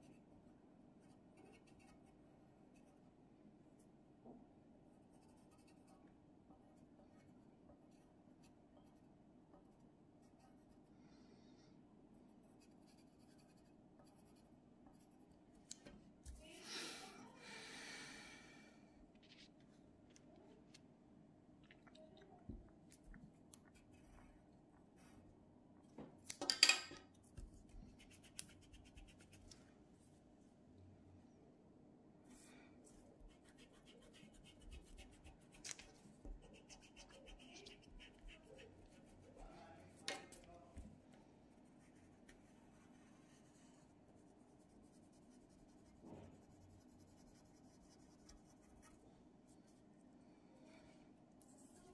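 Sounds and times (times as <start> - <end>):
low room hum: 0.0 - 51.9
pencil scratching on paper: 1.0 - 3.0, 5.0 - 6.0, 9.7 - 10.9, 12.2 - 15.5, 33.2 - 39.8, 41.7 - 49.0.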